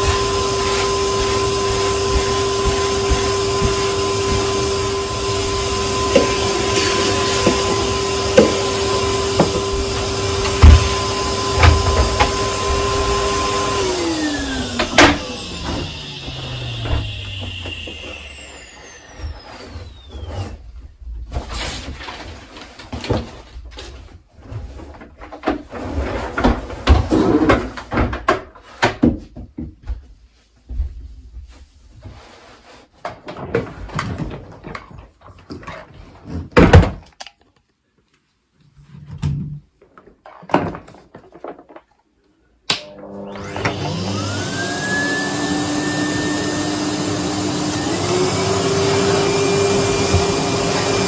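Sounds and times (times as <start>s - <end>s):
vacuum motor winding down: 0.0s - 20.6s, 42.8s - 51.0s.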